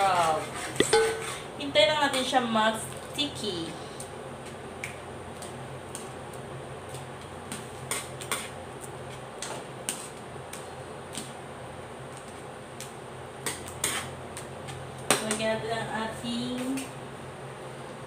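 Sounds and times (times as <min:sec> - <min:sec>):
steady low hum: 0:00.0 - 0:18.0
metal spoon scraping a wok: 0:00.1 - 0:01.5.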